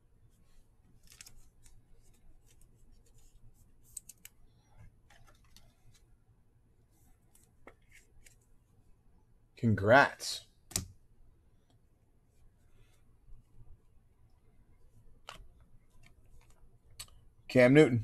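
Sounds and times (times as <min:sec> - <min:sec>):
trading cards being flipped: 0:01.0 - 0:04.4, 0:05.0 - 0:06.1.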